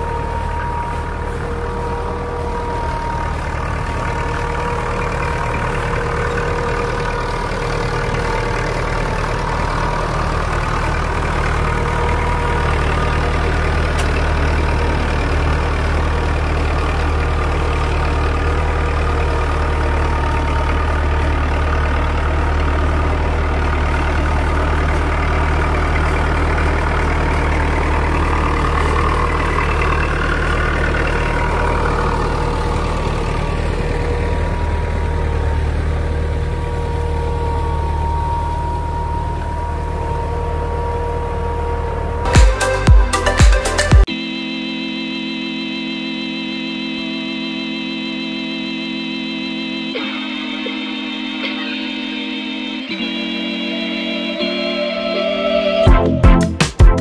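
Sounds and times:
tractor diesel engine running: 0:00.0 - 0:57.0
thin steady whine: 0:44.1 - 0:55.9.

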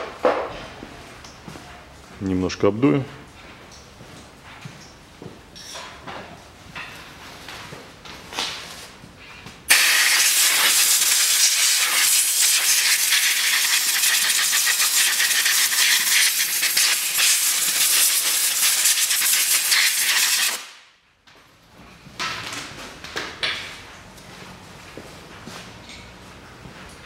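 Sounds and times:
compressed air blow gun hiss: 0:09.7 - 0:20.8.

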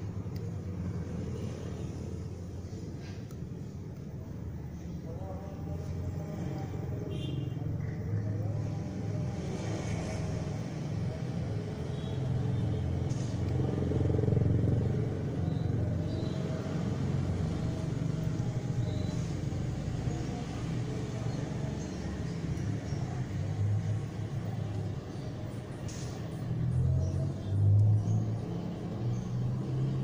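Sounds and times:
vehicle engine rumble passing: 0:00.0 - 0:30.0.

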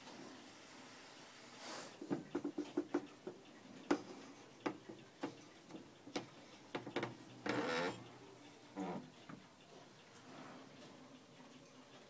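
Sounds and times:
wall clock ticking: 0:02.0 - 0:12.0.

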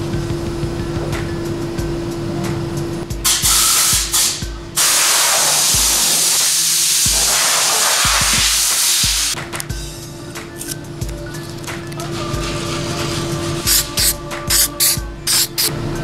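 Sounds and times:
background music with low beat: 0:00.0 - 0:16.0
hissing spray: 0:03.3 - 0:09.4, 0:11.9 - 0:15.7.

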